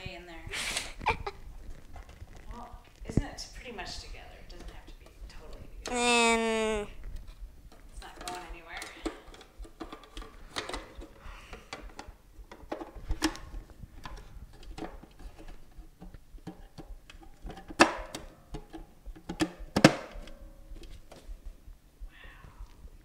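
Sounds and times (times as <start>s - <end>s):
clicks and knocks of hard parts: 7.7s - 21.3s.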